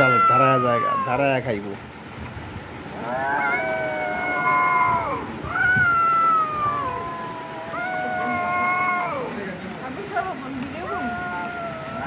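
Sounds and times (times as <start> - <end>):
kitten meowing: 0.0 - 1.2, 3.1 - 9.2, 10.8 - 12.0.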